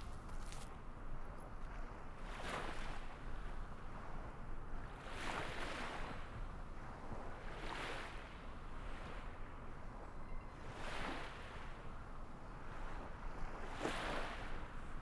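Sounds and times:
small waves washing: 12.6s - 15.0s.

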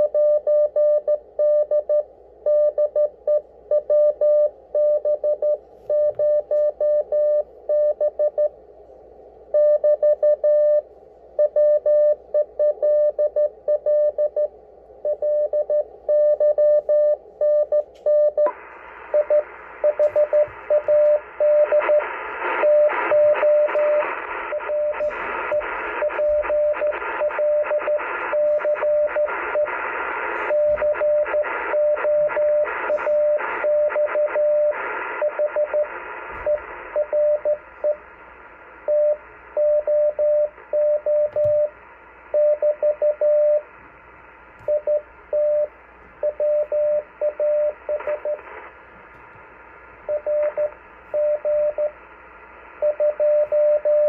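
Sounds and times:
radio receiver hiss: 18.5s - 39.6s, 47.0s - 52.8s.

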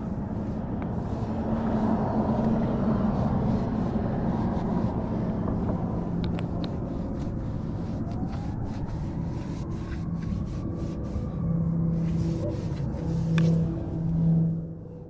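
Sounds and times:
vehicle engine running: 0.0s - 15.0s
faint high tone rising in pitch: 7.9s - 15.0s.

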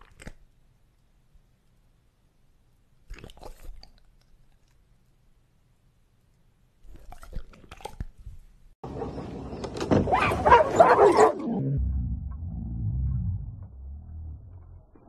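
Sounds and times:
dog chewing wetly: 6.8s - 8.5s
dogs barking excitedly: 10.1s - 11.5s.

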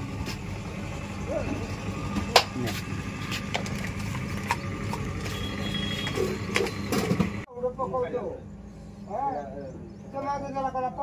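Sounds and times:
engine humming at idle: 0.0s - 7.5s.

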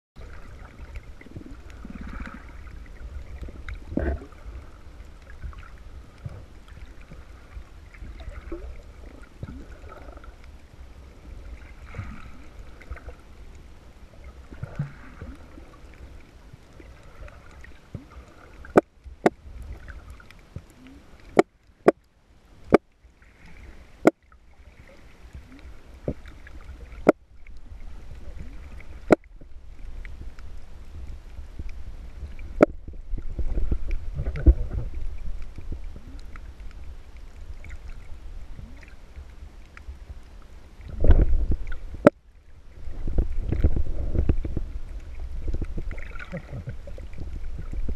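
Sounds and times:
underwater rumble of moving water: 0.2s - 47.9s.

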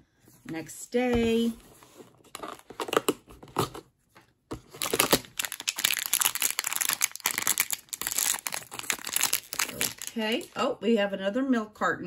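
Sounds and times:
packaging bag crinkling: 4.6s - 10.6s.

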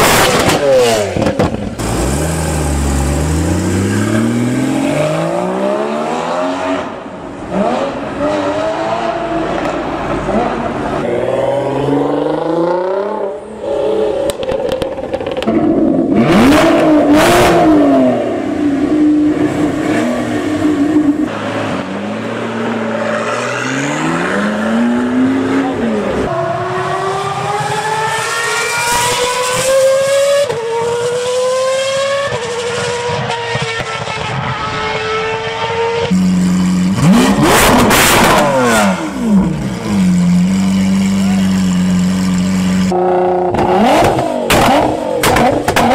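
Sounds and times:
supercar engines revving: 0.0s - 45.9s
racing car accelerating through gears: 19.3s - 40.0s.

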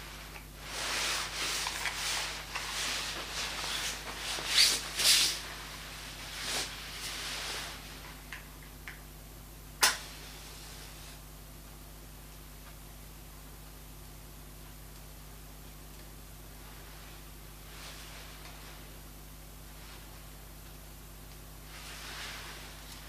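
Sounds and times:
nylon fabric rustling: 0.0s - 8.2s, 21.7s - 23.0s.

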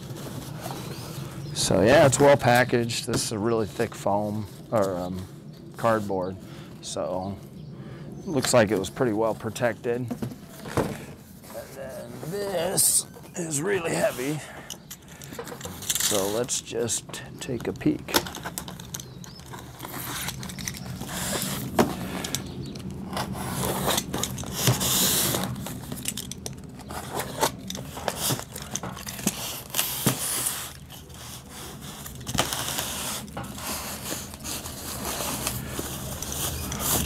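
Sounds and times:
foam scraping and rubbing: 10.4s - 14.4s, 18.7s - 22.4s, 23.0s - 26.1s, 26.8s - 37.0s
knife cutting styrofoam: 29.1s - 37.0s.

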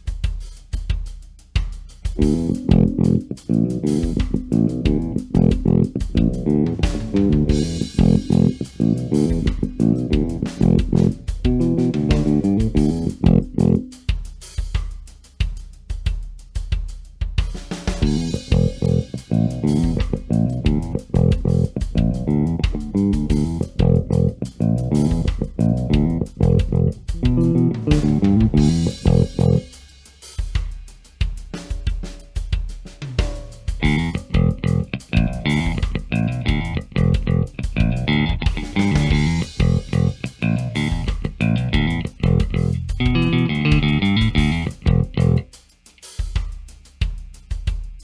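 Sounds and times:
electric bass riff: 2.2s - 14.0s, 18.0s - 29.7s, 33.8s - 45.5s.

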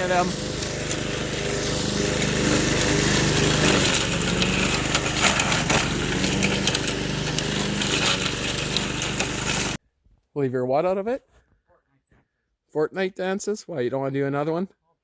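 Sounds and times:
lawn mower engine under load: 0.0s - 9.8s.

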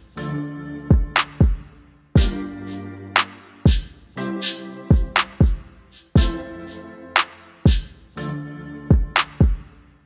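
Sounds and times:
programmed beat with deep kick drums: 0.9s - 4.2s, 4.9s - 8.2s, 8.9s - 9.9s
sharp snare-like hit: 3.2s - 3.8s, 5.2s - 5.6s, 7.2s - 7.8s.

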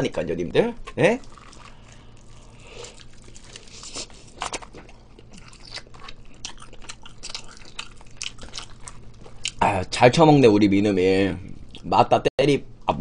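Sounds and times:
crunchy fried chicken chewing: 1.1s - 9.6s.

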